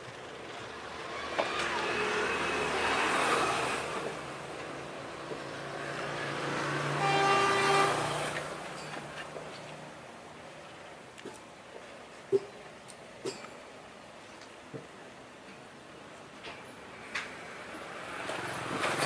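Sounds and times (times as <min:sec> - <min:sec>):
motor vehicle passing: 0:00.2 - 0:10.0
short horn toot: 0:07.0 - 0:08.2.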